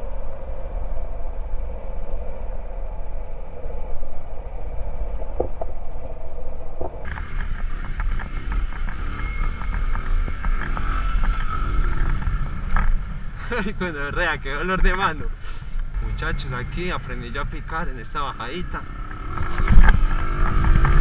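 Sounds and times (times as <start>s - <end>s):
wind rumbling on microphone: 0.0s - 21.0s
motorcycle engine running: 7.1s - 21.0s.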